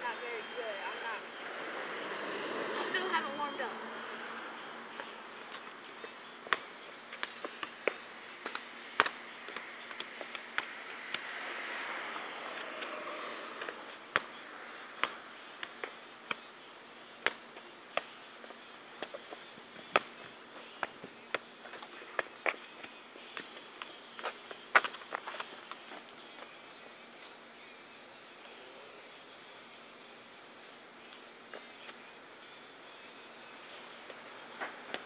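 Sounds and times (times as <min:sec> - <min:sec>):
taps of kicks on soccer ball: 0:06.5 - 0:11.2, 0:14.1 - 0:14.4
insect buzz: 0:10.7 - 0:20.9.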